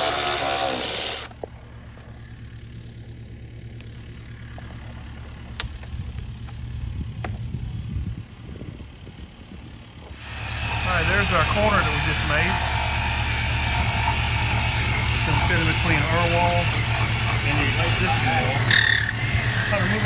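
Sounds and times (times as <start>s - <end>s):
motor idling hum: 0.0s - 20.0s
loud rushing noise: 10.2s - 20.0s
voice: 10.8s - 12.6s, 15.2s - 16.7s, 17.3s - 18.7s, 19.6s - 20.0s.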